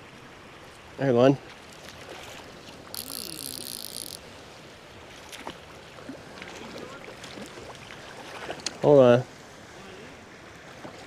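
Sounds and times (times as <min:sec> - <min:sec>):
creek water running: 0:00.0 - 0:11.0
faint ticks: 0:02.9 - 0:04.2.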